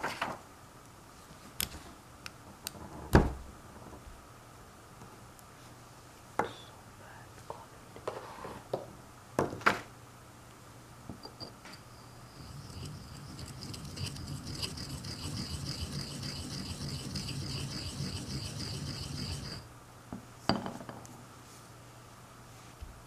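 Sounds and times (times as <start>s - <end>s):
ink stick grinding on stone: 11.7s - 19.7s.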